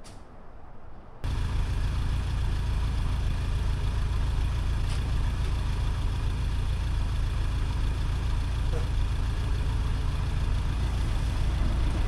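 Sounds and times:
van engine idling: 1.2 - 12.0.

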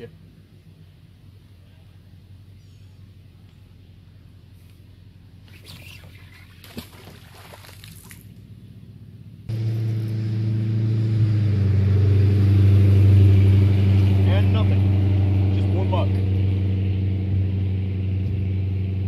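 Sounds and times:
engine humming: 0.0 - 19.0
magnet splashing into water: 5.5 - 8.3.

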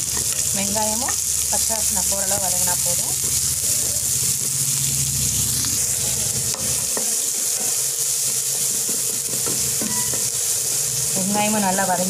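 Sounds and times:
onion and garlic sizzling in oil: 0.0 - 12.0
wooden spatula tapping pan: 8.7 - 10.3.

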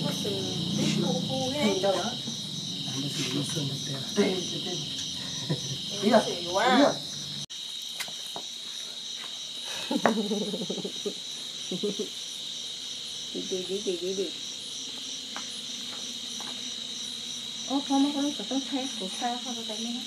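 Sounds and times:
crickets chirring: 0.0 - 20.0.

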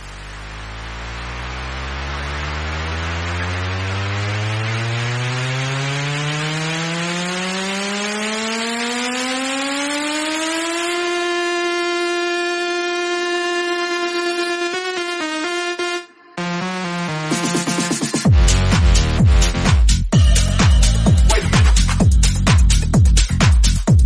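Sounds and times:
rising noise sweep: 0.0 - 18.2
synth riser: 0.0 - 22.3.

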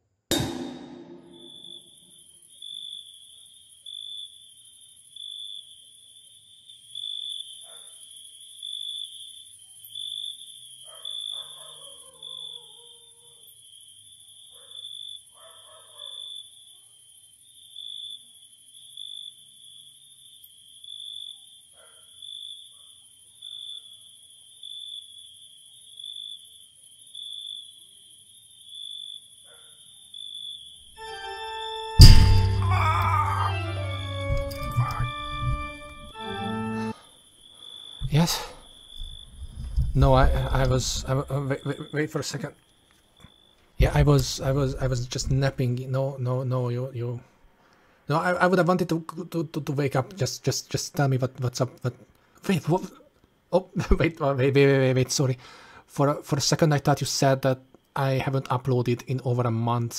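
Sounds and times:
cricket chirping: 0.4 - 48.0, 49.0 - 59.9
faint high hiss: 38.0 - 38.7.

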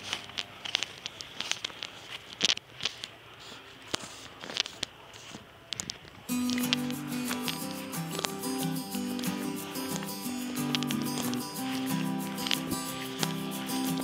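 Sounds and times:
phone handling rustle: 0.0 - 13.6
crackling footsteps: 0.0 - 14.0
music: 6.3 - 14.0.

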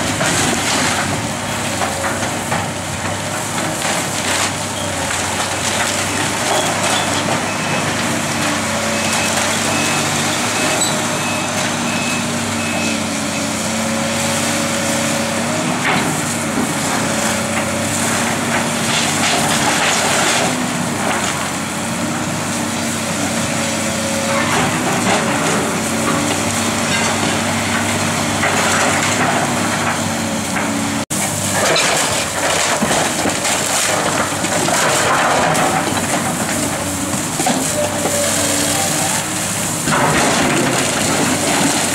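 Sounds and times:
excavator engine running: 0.0 - 41.9
building wreckage crashing: 31.2 - 41.9.

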